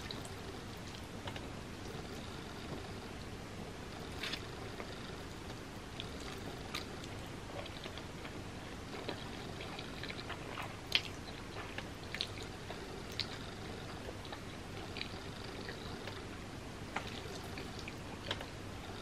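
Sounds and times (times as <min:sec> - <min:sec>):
person chewing and slurping noodles: 0:06.0 - 0:16.2.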